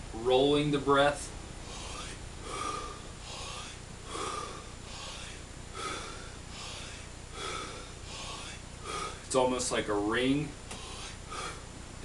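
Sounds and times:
man breathing through mouth: 1.6 - 9.3, 10.7 - 11.7.

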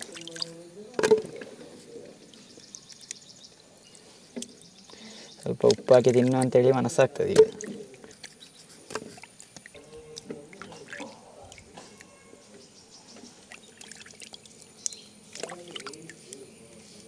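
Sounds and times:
water splashing and dripping: 0.0 - 3.2, 5.4 - 12.1, 13.2 - 16.5
faint music: 9.6 - 17.0.

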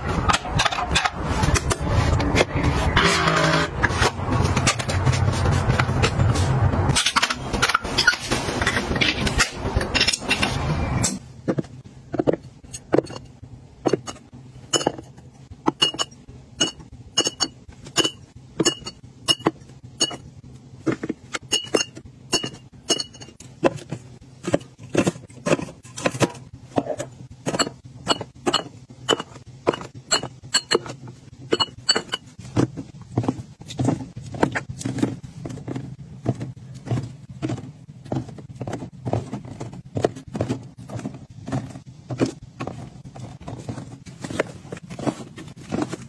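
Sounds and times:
glass bottles clinking: 12.2 - 20.3, 21.3 - 23.4, 26.8 - 32.4.

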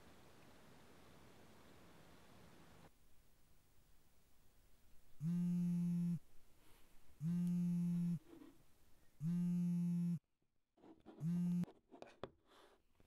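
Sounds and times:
phone vibrating on wood: 5.2 - 6.2, 7.2 - 8.2, 9.2 - 10.2, 11.2 - 11.7.

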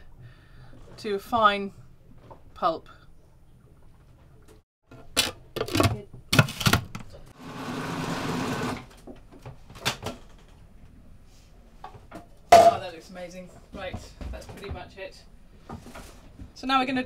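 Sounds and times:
food processor motor blending: 7.4 - 8.9.

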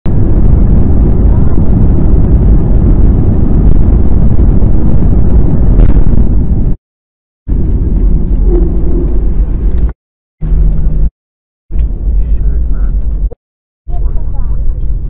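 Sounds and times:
jet engines rumbling: 0.1 - 6.8, 7.5 - 11.1.

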